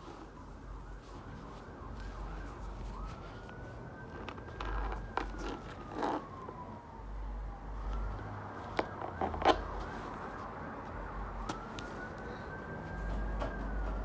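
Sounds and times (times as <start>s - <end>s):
fabric rustling: 0.0s - 6.6s
emergency siren wailing: 0.0s - 14.0s.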